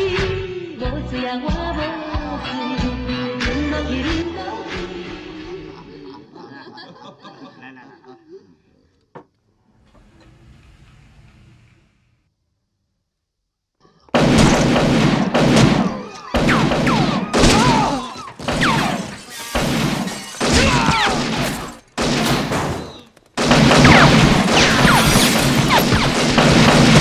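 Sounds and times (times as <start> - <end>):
rapid pistol gunfire: 14.2 - 27.0
plates and glassware smashing: 17.9 - 21.9.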